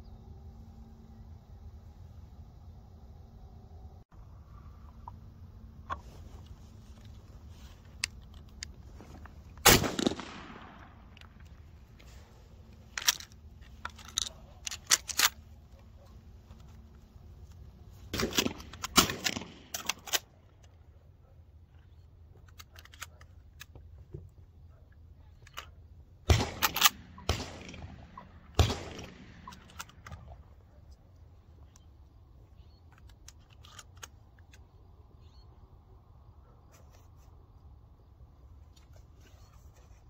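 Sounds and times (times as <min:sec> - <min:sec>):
sharp cracks: 0:08.0 - 0:15.5, 0:18.1 - 0:20.8, 0:25.5 - 0:30.5
shotgun shots with echo: 0:09.6 - 0:11.0, 0:26.3 - 0:29.5
metallic gun handling clicks: 0:12.7 - 0:15.5, 0:22.4 - 0:23.8, 0:29.0 - 0:30.3, 0:32.6 - 0:34.8.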